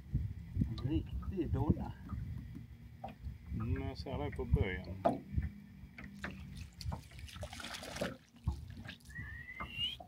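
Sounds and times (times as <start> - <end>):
water lapping around boat: 0.0 - 10.0
short rising whistle: 9.1 - 10.0.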